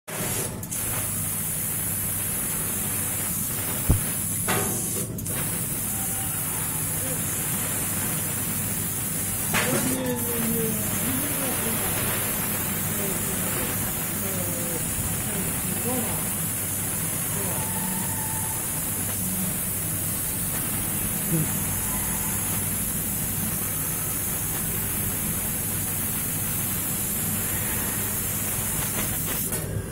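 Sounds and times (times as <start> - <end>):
plasma cutter hissing: 0.1 - 29.9
low machine hum: 3.8 - 25.6.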